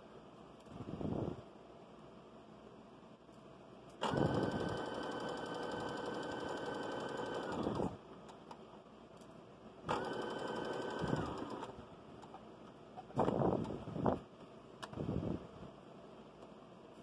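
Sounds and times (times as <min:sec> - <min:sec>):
sewing machine stitching: 0:04.0 - 0:08.0, 0:09.9 - 0:11.8.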